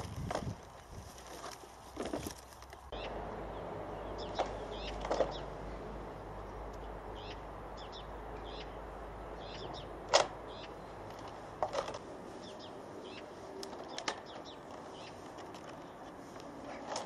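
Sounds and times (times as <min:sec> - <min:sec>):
small birds chirping: 0:01.8 - 0:16.9
sharp clicks: 0:09.5 - 0:12.1.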